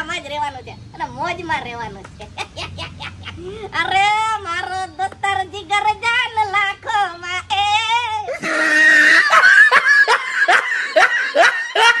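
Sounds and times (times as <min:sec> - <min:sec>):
high-pitched cackling laugh: 0:02.2 - 0:03.6, 0:08.3 - 0:12.0
men laughing heartily: 0:02.4 - 0:03.7, 0:08.3 - 0:12.0.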